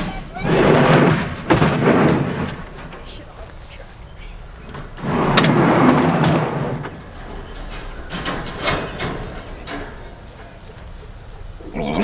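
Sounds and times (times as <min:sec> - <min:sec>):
wire crate scraping on plastic: 0:00.0 - 0:03.2, 0:04.7 - 0:10.5.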